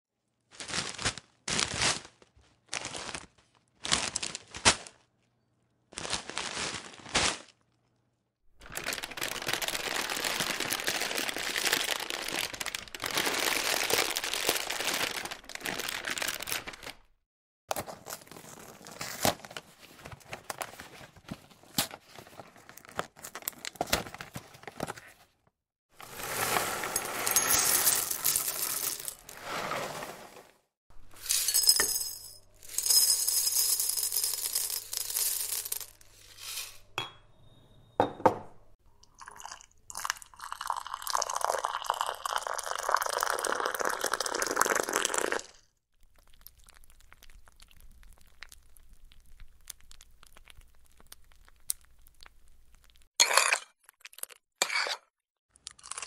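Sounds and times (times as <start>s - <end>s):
cornflakes poured onto a plate: 26.0s - 30.4s.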